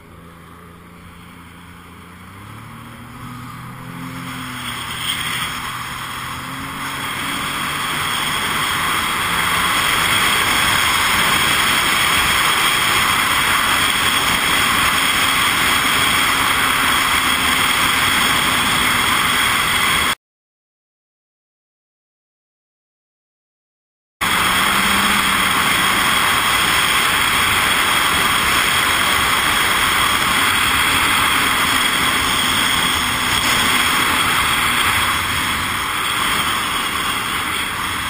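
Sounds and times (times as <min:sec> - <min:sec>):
jet ski engine speeding up: 0:00.0 - 0:20.2, 0:24.2 - 0:38.0
rush of wind and water: 0:05.4 - 0:20.2, 0:24.2 - 0:38.0.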